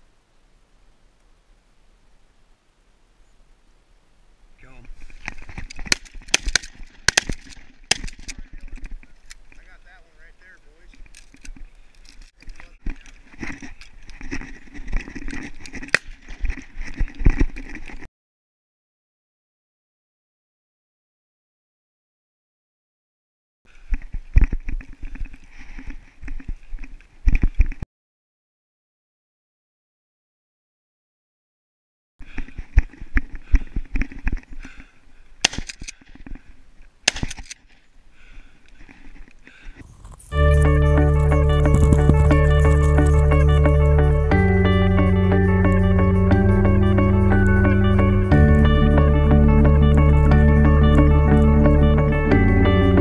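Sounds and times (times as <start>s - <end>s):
sharp cracks: 5.2s - 9.7s, 15.2s - 16.5s, 35.4s - 36.4s, 37.0s - 37.9s
camera jostling: 39.2s - 43.8s
footsteps through dry grass: 39.8s - 51.6s.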